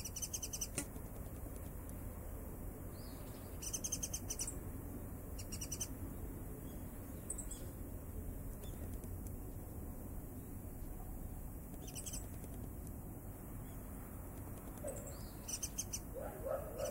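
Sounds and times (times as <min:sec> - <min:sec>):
bird chirping high: 0:00.0 - 0:00.8, 0:02.9 - 0:04.6, 0:05.3 - 0:06.0, 0:11.8 - 0:12.4, 0:14.8 - 0:16.9
steady low hiss: 0:00.0 - 0:16.2.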